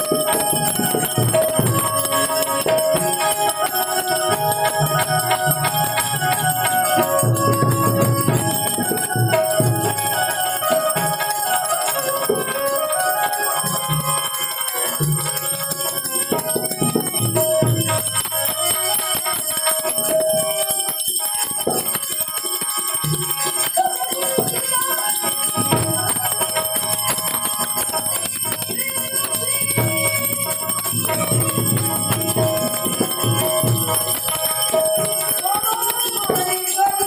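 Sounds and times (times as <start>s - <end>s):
harmonium chords: 0.0s - 37.0s
high metallic ringing: 0.0s - 37.0s
man singing: 28.4s - 31.4s.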